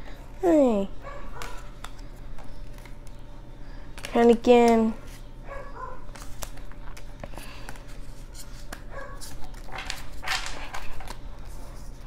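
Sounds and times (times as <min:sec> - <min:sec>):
deck of cards rustling: 0:01.4 - 0:03.2, 0:06.0 - 0:12.0
cards clicking and sliding: 0:06.0 - 0:12.0.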